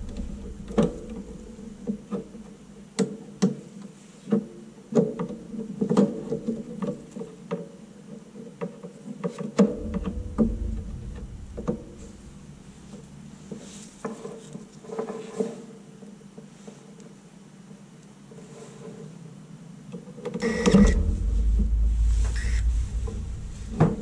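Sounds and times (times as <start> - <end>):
low rumble: 0.0 - 1.9, 9.7 - 14.0, 20.4 - 24.0
low steady hum: 0.0 - 2.5, 9.6 - 13.6, 20.4 - 24.0.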